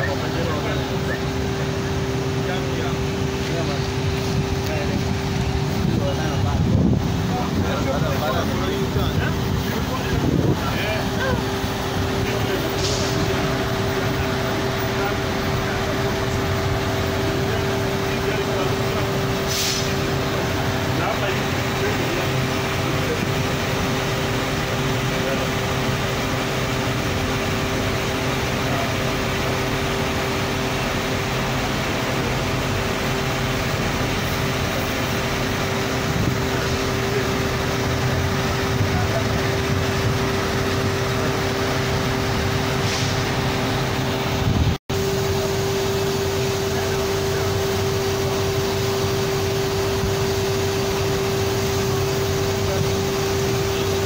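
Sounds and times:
crowd voices: 0:00.0 - 0:54.0
engine running with hum: 0:00.0 - 0:54.0
traffic: 0:00.0 - 0:54.0.

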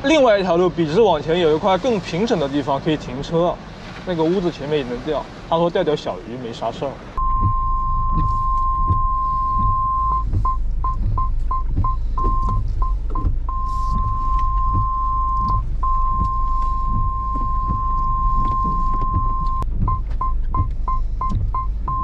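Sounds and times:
low rumble of slow vehicle: 0:06.8 - 0:22.0
parking sensor beeping: 0:07.2 - 0:22.0
ticks: 0:07.2 - 0:22.0.

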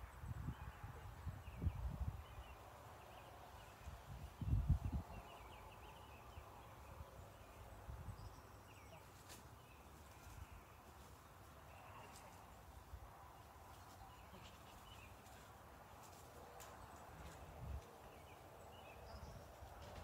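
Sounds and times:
wind rumbling on microphone: 0:00.0 - 0:08.5, 0:16.8 - 0:20.0.

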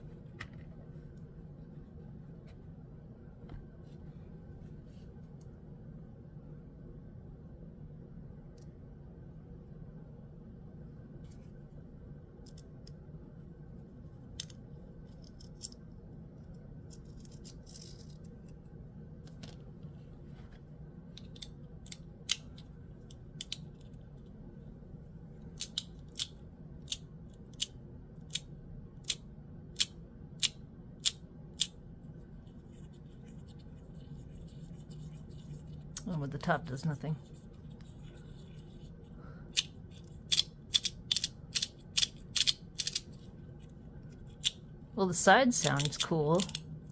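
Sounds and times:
magnetic fidget toy clicking: 0:39.6 - 0:43.0.

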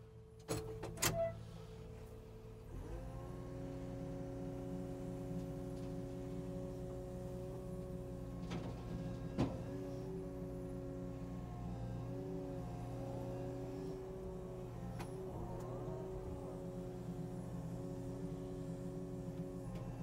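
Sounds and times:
excavator engine and hydraulics: 0:00.0 - 0:20.0.

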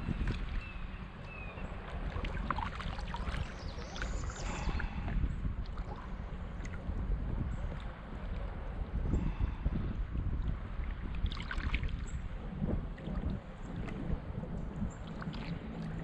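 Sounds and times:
water lapping against hull: 0:00.0 - 0:16.0
wind rumbling on microphone: 0:00.0 - 0:16.0
small splashes and taps: 0:01.8 - 0:04.1.

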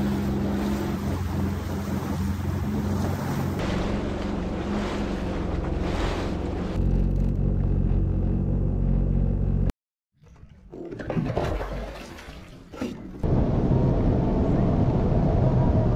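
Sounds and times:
personal watercraft engine hum: 0:00.0 - 0:09.7.

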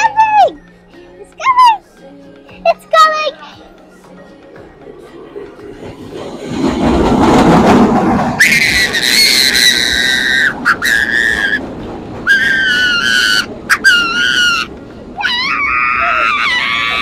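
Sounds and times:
train rumble: 0:03.0 - 0:17.0
train brakes and wheels squealing: 0:08.3 - 0:11.6, 0:12.2 - 0:14.7.

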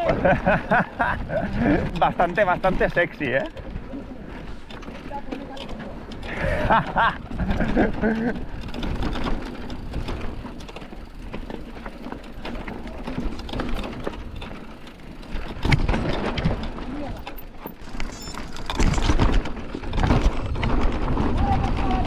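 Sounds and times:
bike chain and frame clattering: 0:00.0 - 0:22.0
tyres crunching over stones: 0:01.0 - 0:21.9
wind on microphone: 0:17.9 - 0:22.0.

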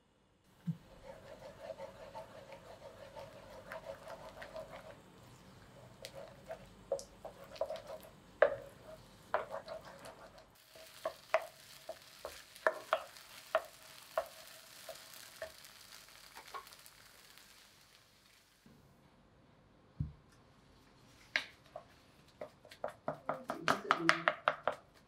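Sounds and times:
wooden spatula stirring dough: 0:00.6 - 0:15.6
spatula tapping and scraping pan: 0:00.7 - 0:05.0, 0:05.7 - 0:15.6, 0:21.7 - 0:25.0.

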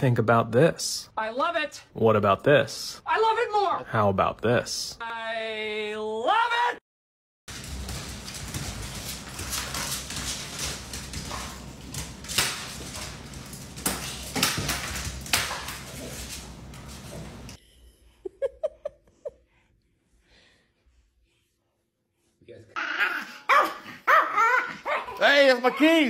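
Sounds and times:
dog scrambling on hard floor: 0:07.5 - 0:17.6.

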